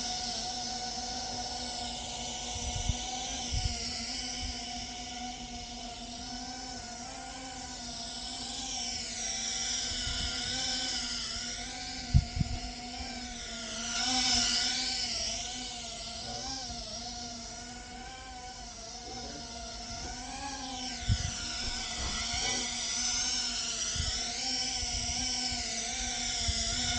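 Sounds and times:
drone motors whining: 0.0 - 26.9.

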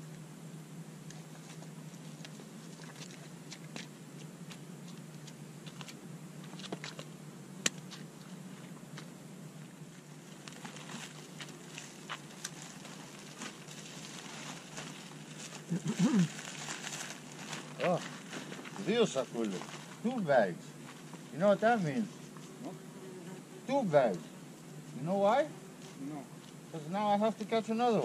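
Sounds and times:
low steady hum: 0.0 - 28.0
plastic bags rustling: 10.6 - 20.0.

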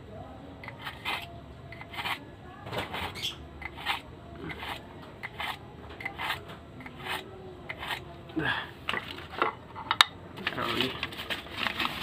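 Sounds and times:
knife scraping through sharpener: 0.6 - 2.2, 2.9 - 8.0.

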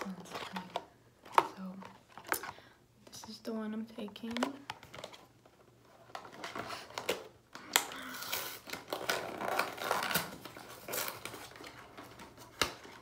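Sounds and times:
plastic packaging crinkling and tearing: 6.0 - 13.0.

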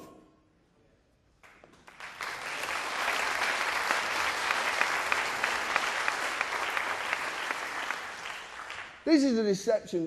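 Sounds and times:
audience applauding: 1.4 - 9.3.

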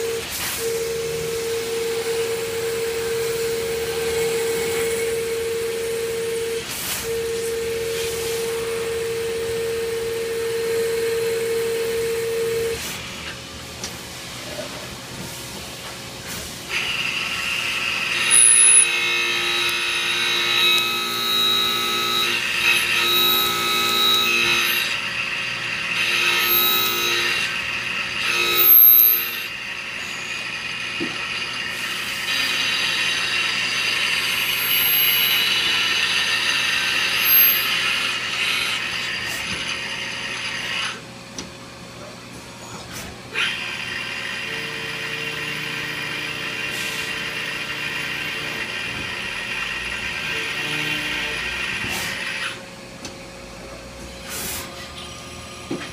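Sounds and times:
machine motors whining: 0.0 - 13.4, 16.7 - 41.0.

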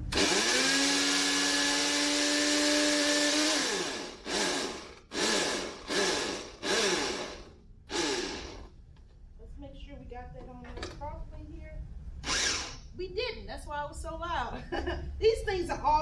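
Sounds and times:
electric blender whirring: 0.0 - 8.7, 12.2 - 12.8.

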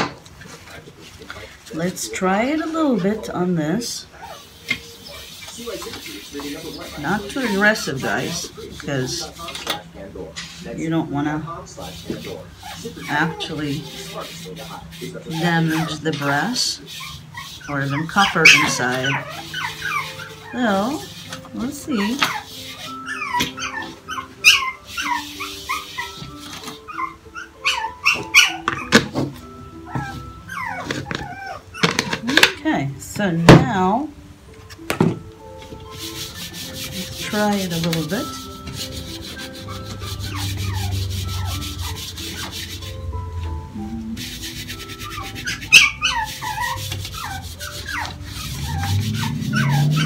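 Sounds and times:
dog whimpering: 4.0 - 5.4, 6.8 - 9.2, 12.5 - 14.2, 15.0 - 32.5, 39.4 - 42.9, 45.0 - 50.0
cloth rubbing on brass: 4.2 - 9.5, 35.9 - 42.9, 44.2 - 45.6.

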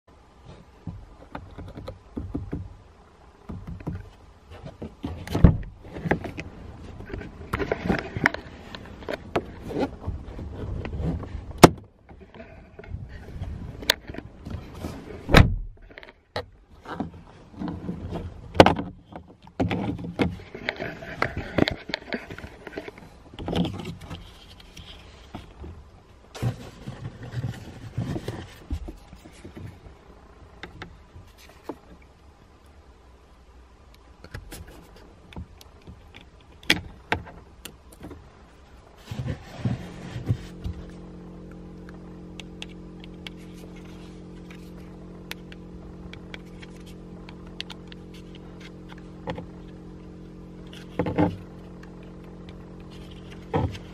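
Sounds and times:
plastic clicks and scraping: 0.9 - 2.7, 3.5 - 14.9, 15.8 - 25.8, 33.9 - 38.2, 39.0 - 53.9.

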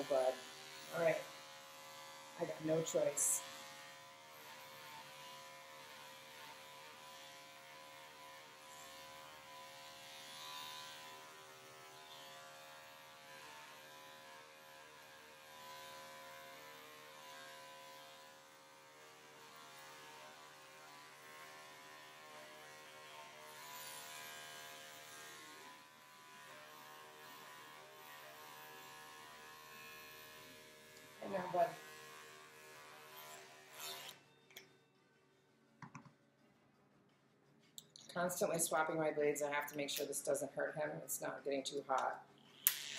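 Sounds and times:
electric dog clippers humming: 0.0 - 34.7, 41.9 - 42.9.

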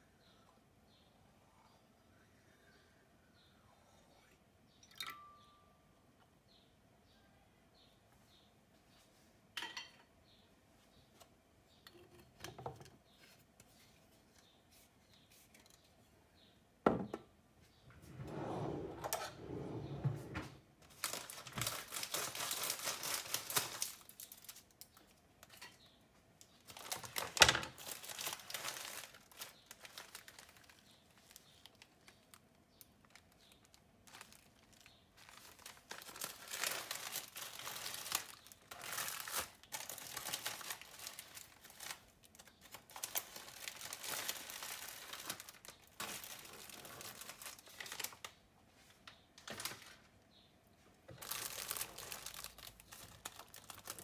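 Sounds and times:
plastic wrapping crinkling: 20.8 - 25.7, 26.4 - 48.4, 51.1 - 54.0.

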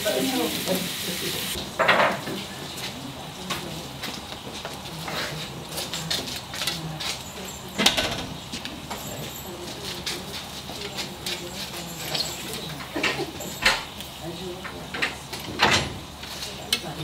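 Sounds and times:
meat sizzling on a grill: 0.0 - 2.4
wood fire crackling: 0.0 - 7.7.

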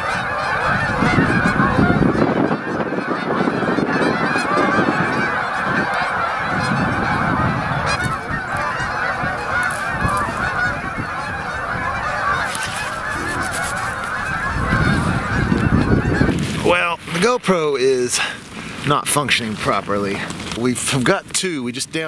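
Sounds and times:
geese honking: 0.0 - 22.0.

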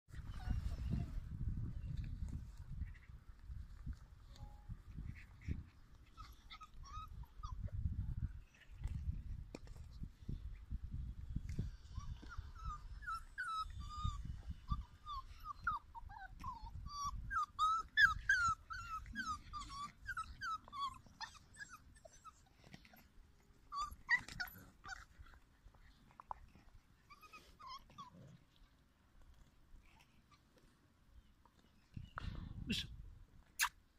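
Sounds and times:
puppies whining and yipping: 0.1 - 2.7, 3.8 - 10.4, 11.3 - 28.8.

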